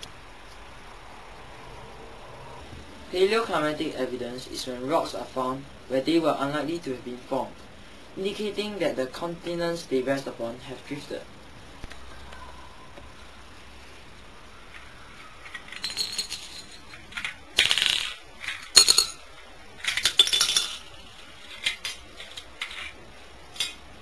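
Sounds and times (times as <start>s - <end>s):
plastic bricks and shells clattering: 14.8s - 23.8s.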